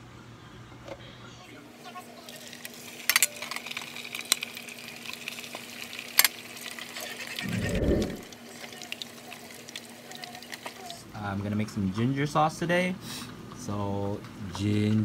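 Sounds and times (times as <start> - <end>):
oil sizzling: 1.9 - 11.1
low rumble: 7.4 - 8.3
faint steady hum: 7.4 - 8.4.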